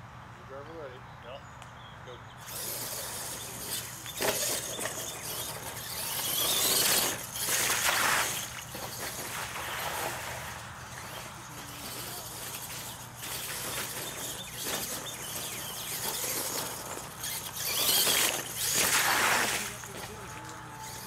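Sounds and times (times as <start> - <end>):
toy truck running on dirt: 2.4 - 21.0
toy truck splashing through water: 2.4 - 21.0.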